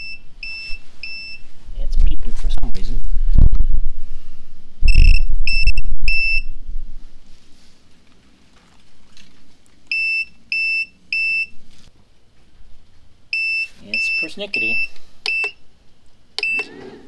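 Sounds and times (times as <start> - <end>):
inverter alarm beeps: 0.0 - 1.4, 4.9 - 6.5, 9.9 - 11.6, 13.3 - 15.6, 16.4 - 16.7
loud low rumble: 2.1 - 7.2.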